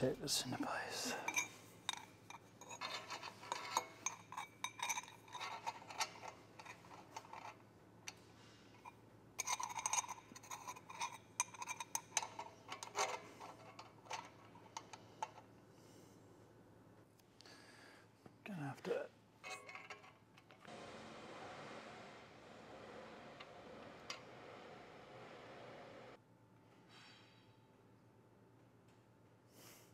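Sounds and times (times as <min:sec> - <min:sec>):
metal exhaust tubing clinking: 0:01.1 - 0:15.5, 0:19.4 - 0:20.7.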